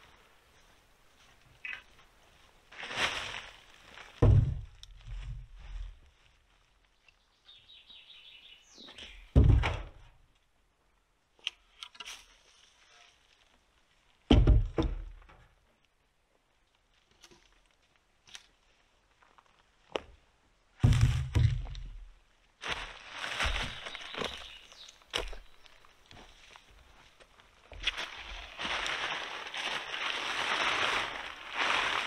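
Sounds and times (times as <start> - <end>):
wooden poles thudding: 4.1 - 6.0, 9.2 - 10.2, 14.3 - 15.5, 20.8 - 22.1.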